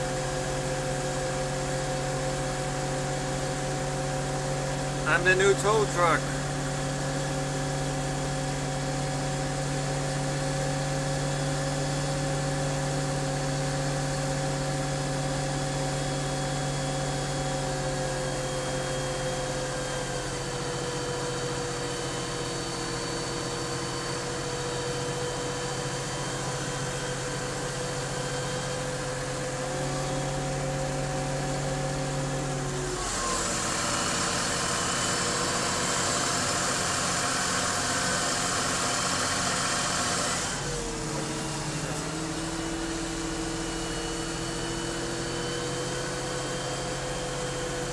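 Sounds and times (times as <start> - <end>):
tractor diesel engine running: 0.2 - 12.0, 40.6 - 45.8.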